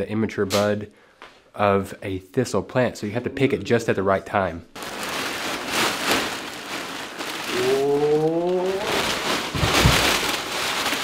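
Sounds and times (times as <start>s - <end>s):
plastic garbage bag rustling: 4.8s - 11.0s.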